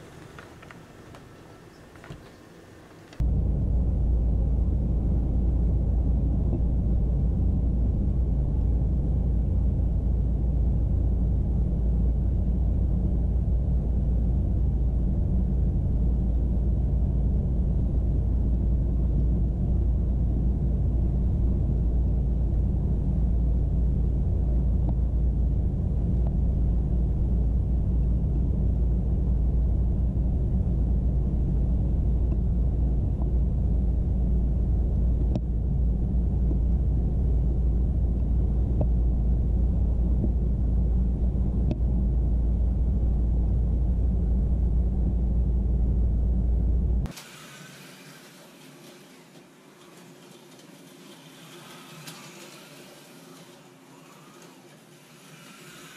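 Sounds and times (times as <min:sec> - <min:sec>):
faint clicks from rails: 0:00.0 - 0:03.2, 0:47.1 - 0:55.9
model train wheels and motor rumble: 0:00.0 - 0:03.3, 0:46.1 - 0:55.9.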